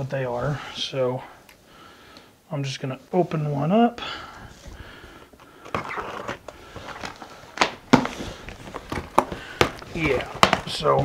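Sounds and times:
cardboard rustling and scraping: 4.5 - 11.0.

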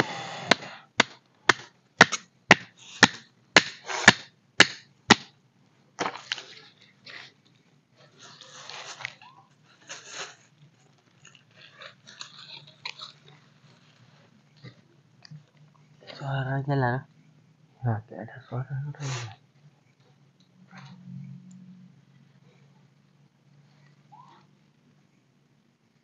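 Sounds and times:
rustling and scraping of sticks: 0.0 - 5.3, 6.0 - 16.4.

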